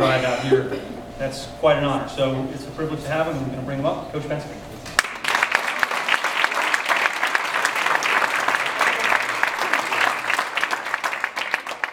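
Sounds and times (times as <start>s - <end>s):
audience applauding: 5.0s - 11.9s.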